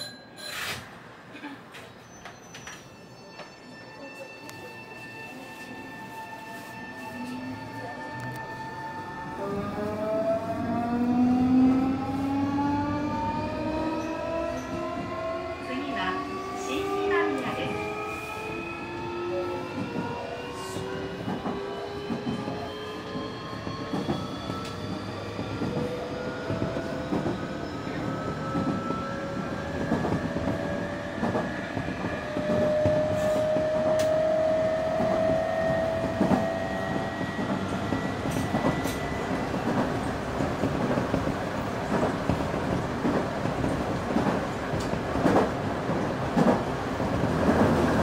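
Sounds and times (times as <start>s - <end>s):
rail joint clicks: 29.8s - 34.3s, 34.9s - 48.0s.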